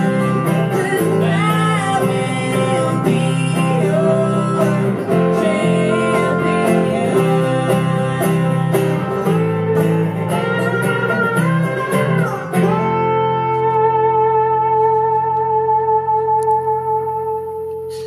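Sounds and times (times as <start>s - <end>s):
country band playing: 0.0s - 18.0s
strummed acoustic guitar: 0.0s - 18.0s.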